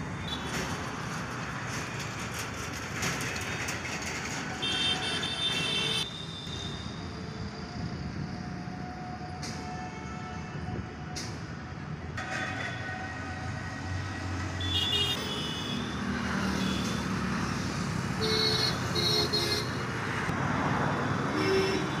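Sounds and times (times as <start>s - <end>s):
road traffic passing: 0.0s - 22.0s
vehicle horns tooting: 4.6s - 6.8s.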